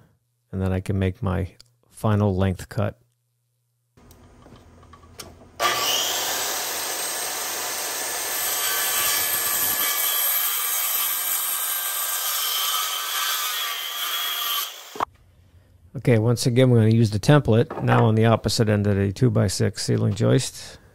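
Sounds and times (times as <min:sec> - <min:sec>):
circular saw cutting wood: 0:05.6 - 0:15.1.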